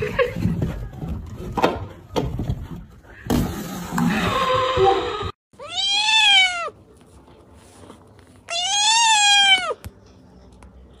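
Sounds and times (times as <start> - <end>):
cat meowing: 5.6 - 6.8, 8.5 - 9.8.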